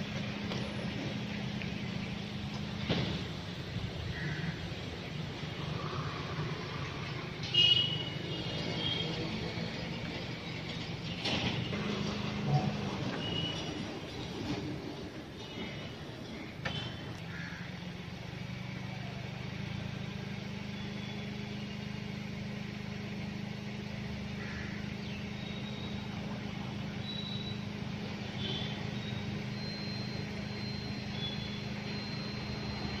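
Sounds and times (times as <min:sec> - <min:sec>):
bird chirps: 0:27.0 - 0:27.7.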